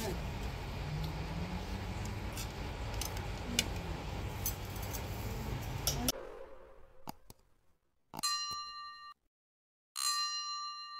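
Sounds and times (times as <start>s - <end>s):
low rumble: 4.8s - 8.0s.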